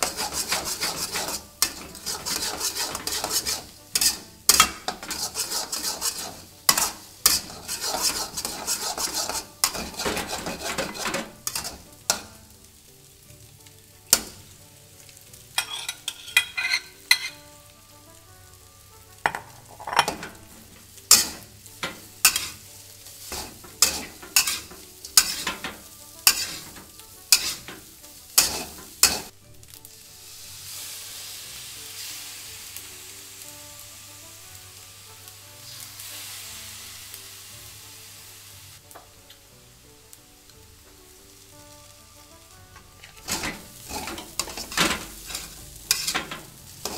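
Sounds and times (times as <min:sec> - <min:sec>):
metal spatula scraping wok: 0:00.0 - 0:12.5, 0:14.1 - 0:14.6, 0:15.5 - 0:17.6, 0:19.2 - 0:29.3, 0:35.1 - 0:37.0, 0:41.6 - 0:46.9
oil sizzling: 0:00.0 - 0:46.9.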